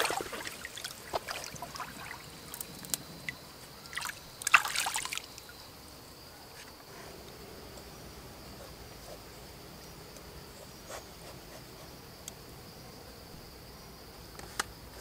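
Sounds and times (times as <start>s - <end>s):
stream water splashing and trickling: 0.0s - 5.7s.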